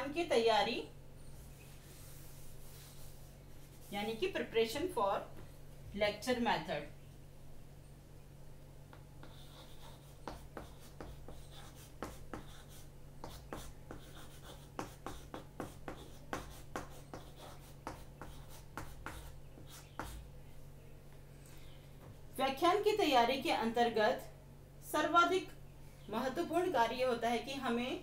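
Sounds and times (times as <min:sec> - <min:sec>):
steady low hum: 0:00.0 - 0:28.0
chalk writing on chalkboard: 0:01.4 - 0:04.2, 0:08.9 - 0:20.3.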